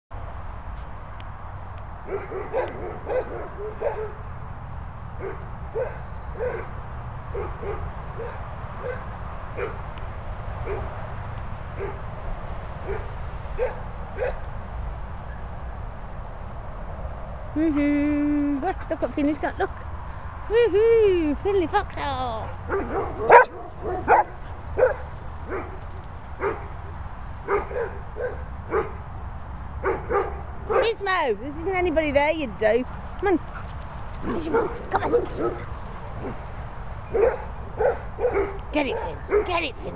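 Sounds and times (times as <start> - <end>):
dog barking: 2.1 - 4.2, 5.2 - 9.8, 10.6 - 10.9, 11.8 - 12.0, 12.8 - 14.4, 22.7 - 25.8, 26.4 - 26.7, 27.4 - 29.0, 29.8 - 31.0, 34.2 - 36.4, 37.1 - 39.6.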